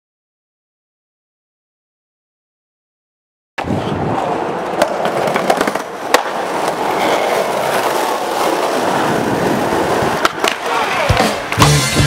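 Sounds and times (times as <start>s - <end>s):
skateboard wheels rolling on pavement: 3.6s - 12.0s
sharp skateboard clacks: 4.6s - 11.8s.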